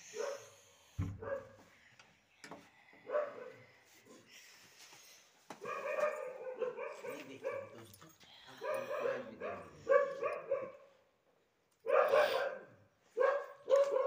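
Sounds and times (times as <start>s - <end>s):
dog barking: 0.1s - 0.6s, 1.2s - 1.6s, 3.1s - 3.6s, 5.6s - 7.9s, 8.6s - 11.0s, 11.8s - 14.0s.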